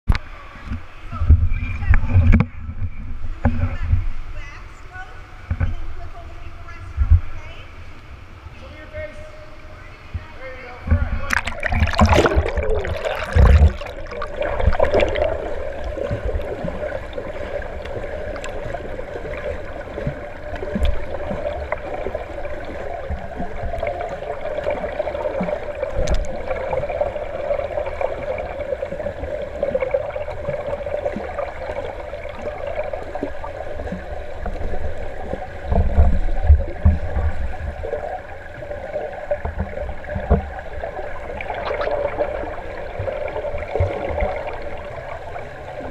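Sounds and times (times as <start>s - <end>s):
low underwater thumps: 10.2s - 44.9s
muffled underwater gurgling: 10.9s - 45.9s.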